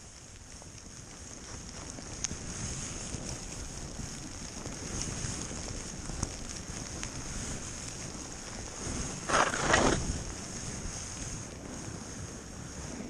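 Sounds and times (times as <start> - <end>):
skis running through powder snow: 0.0 - 13.0
wind on microphone: 0.1 - 13.0.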